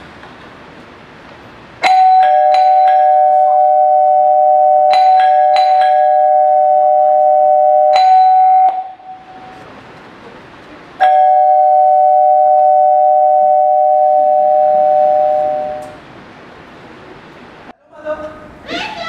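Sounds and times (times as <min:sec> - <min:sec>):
two-tone doorbell ringing: 0:01.8 - 0:09.6, 0:11.0 - 0:16.0.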